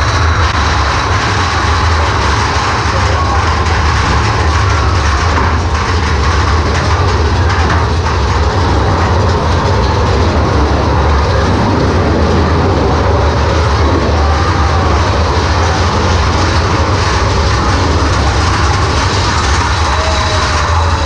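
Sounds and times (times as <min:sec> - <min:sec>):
roller coaster rumbling on track: 0:00.0 - 0:21.0.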